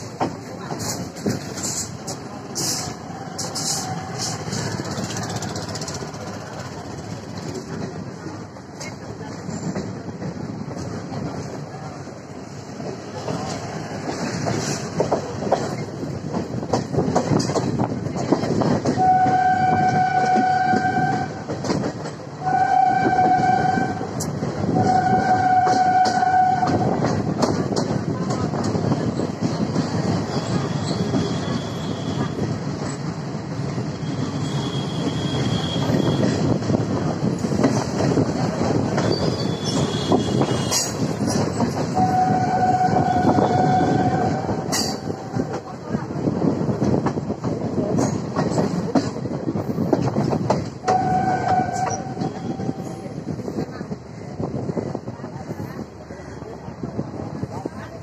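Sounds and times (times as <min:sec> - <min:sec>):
train wheels clattering on rails: 0:00.0 - 0:58.0
train horn blasts: 0:18.9 - 0:21.5, 0:22.4 - 0:24.1, 0:24.7 - 0:27.0, 0:34.4 - 0:36.4, 0:41.9 - 0:45.2, 0:50.8 - 0:53.0.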